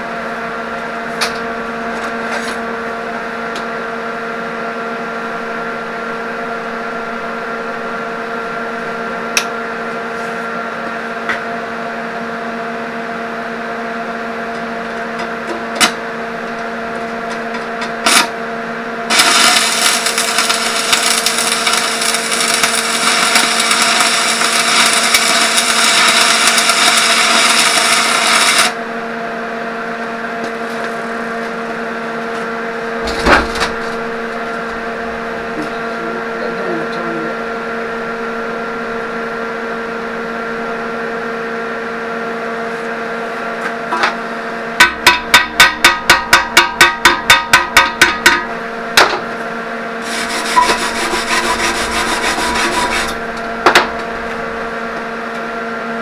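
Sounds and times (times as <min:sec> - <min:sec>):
steady hum: 0:00.0 - 0:56.0
loud rasping hissing noise: 0:50.0 - 0:53.5.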